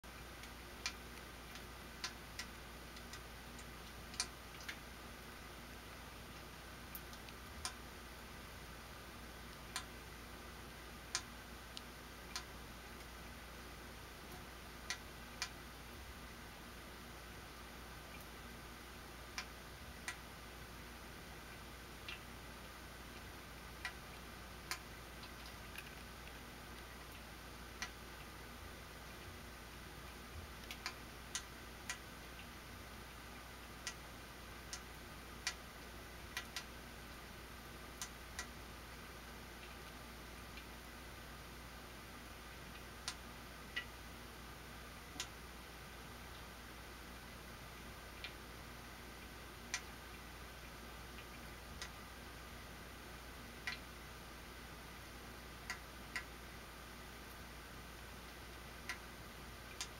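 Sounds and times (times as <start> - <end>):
low steady hum: 0.0 - 59.9
faint ticks and clicks: 0.1 - 5.5, 6.1 - 8.3, 9.4 - 16.5, 19.2 - 41.2, 42.2 - 44.0, 45.0 - 45.4, 46.2 - 54.1, 54.8 - 59.9
faint sharp clicks: 53.7 - 53.9.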